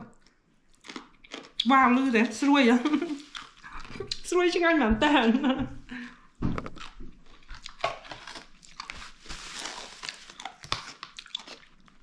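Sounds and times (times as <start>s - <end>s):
plastic rustling: 6.4s - 11.6s.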